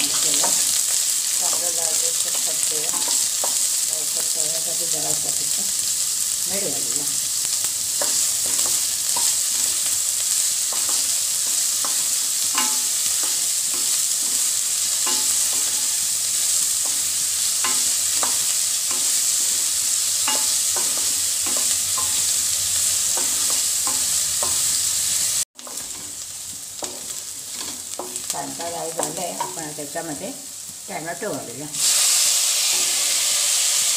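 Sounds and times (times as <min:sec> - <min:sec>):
onions sizzling in hot oil: 0:00.0 - 0:33.9.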